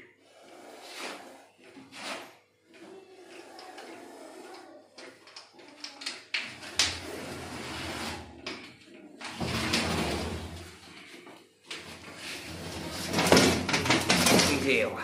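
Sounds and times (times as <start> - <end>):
metal bin scraping on concrete: 0.4 - 4.5, 6.6 - 8.7, 9.3 - 11.0, 11.8 - 15.0.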